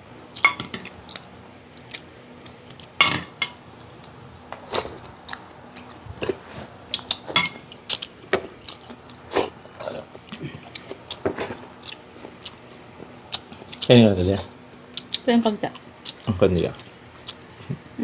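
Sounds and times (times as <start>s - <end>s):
utensils clinking against bowls: 0.4s - 0.9s, 7.0s - 7.8s
chewing: 0.4s - 3.0s, 3.8s - 14.0s, 14.9s - 17.8s.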